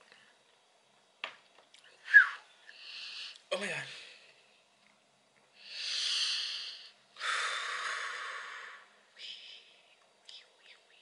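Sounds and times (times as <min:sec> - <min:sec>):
person exhaling hard: 0:05.7 - 0:09.0.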